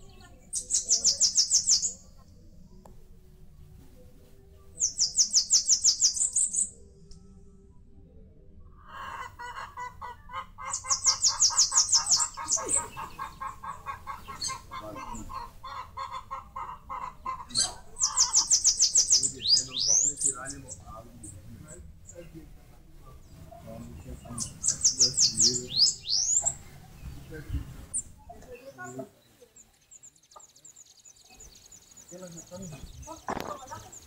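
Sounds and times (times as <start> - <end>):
songbird rapid lower chirps: 0.0 - 7.4, 8.9 - 34.0
songbird high fast trill: 10.7 - 13.2, 17.5 - 20.3.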